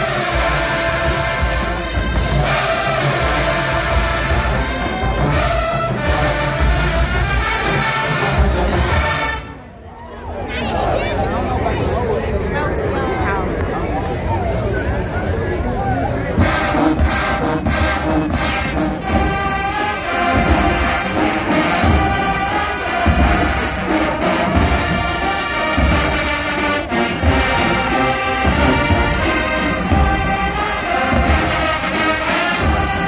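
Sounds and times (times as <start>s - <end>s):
heavy drum beats: 0.0s - 9.4s, 16.3s - 33.0s
marching band playing: 0.0s - 9.8s, 16.3s - 33.0s.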